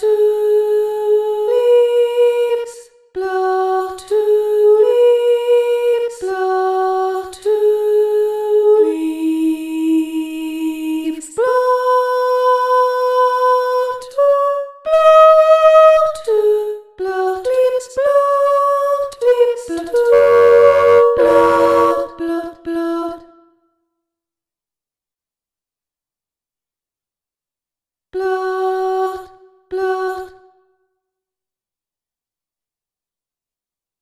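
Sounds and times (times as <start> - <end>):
sampled female voice singing: 0.0 - 23.5, 28.1 - 30.6.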